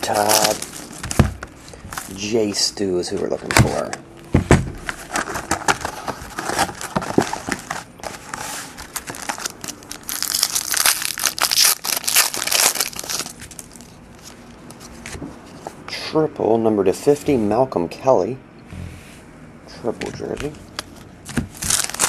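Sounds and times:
plastic wrapper crinkling and tearing: 0.0 - 1.4, 5.0 - 14.4, 21.3 - 22.0.

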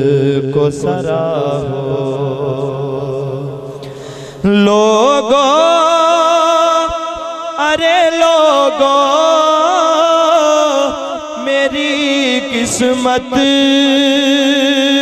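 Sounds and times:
man singing into a microphone: 0.0 - 15.0.

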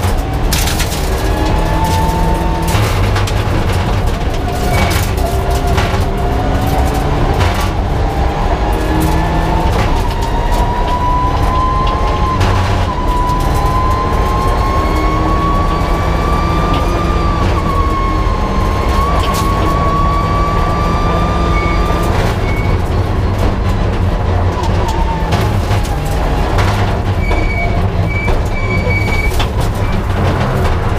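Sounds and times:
car engine at speed: 0.0 - 30.9
knocks from bumps: 0.0 - 30.9
road noise: 0.0 - 30.9.

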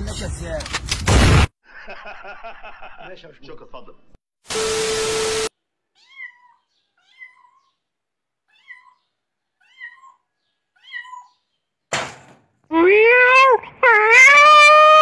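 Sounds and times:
cat meowing: 6.0 - 7.7, 8.5 - 11.4, 12.7 - 15.0.

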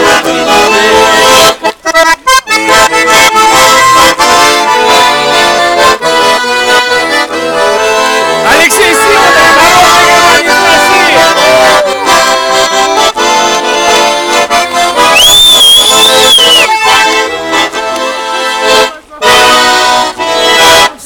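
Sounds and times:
button accordion playing chords: 0.0 - 21.0
shrill high accordion note: 0.0 - 21.0
person speaking: 8.4 - 12.1.

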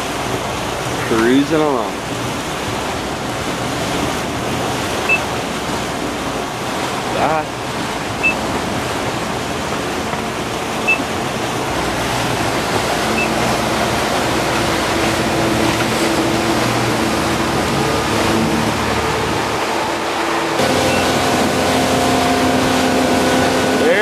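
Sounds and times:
motorboat engines droning: 0.0 - 24.0.

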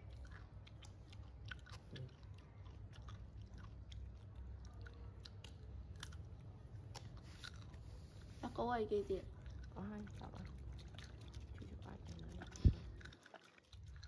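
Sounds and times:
monkey crunching biscuit: 9.3 - 14.0.

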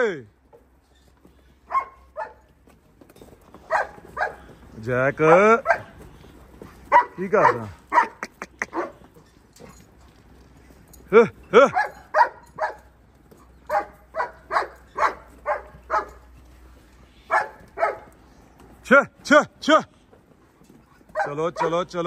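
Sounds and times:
dog barking: 1.7 - 2.4, 3.6 - 4.5, 5.6 - 6.0, 6.9 - 9.0, 11.7 - 12.9, 13.7 - 16.2, 17.3 - 18.1, 21.1 - 21.9.

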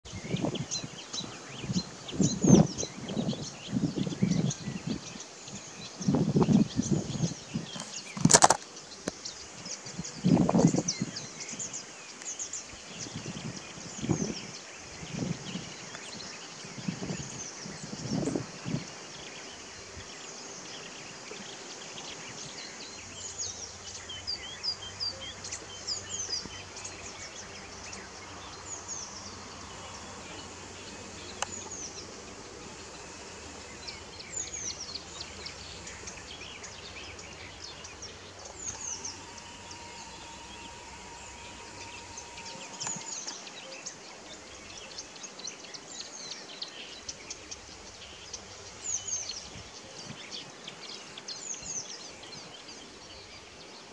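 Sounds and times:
songbirds chirping and trilling: 0.0 - 53.9
background hiss: 0.1 - 53.9
faint steady hum: 9.0 - 45.8.

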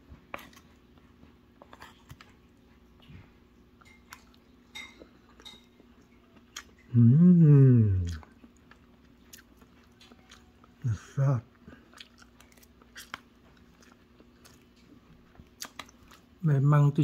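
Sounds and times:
faint steady hum: 0.0 - 17.0
person speaking: 6.9 - 8.2.

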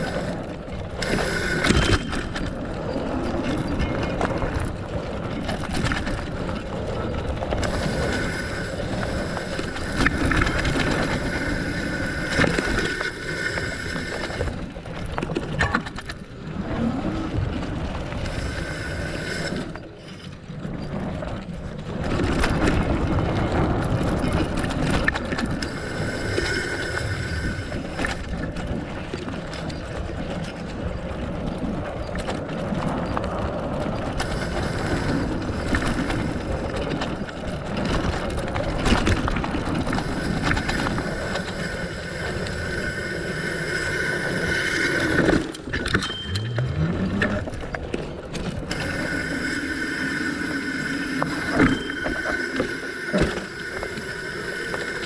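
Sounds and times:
bike rattling and knocking: 0.0 - 8.0
bike tyres rolling on dirt: 0.0 - 55.0.

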